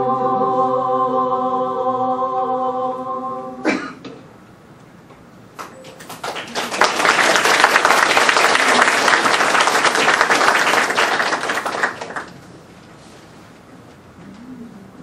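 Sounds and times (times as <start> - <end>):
audience applauding: 5.6 - 12.4.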